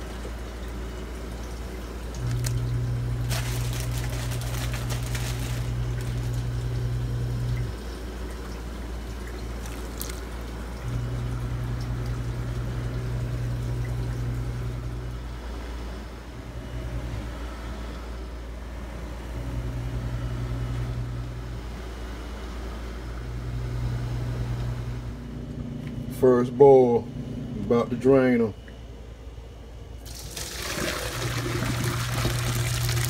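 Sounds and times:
water boiling and bubbling: 0.0s - 15.0s, 30.0s - 33.0s
strong low hum: 2.0s - 30.0s.

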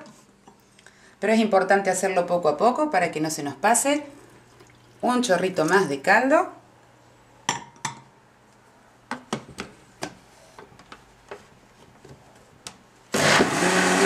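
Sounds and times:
blender running: 13.1s - 14.0s.

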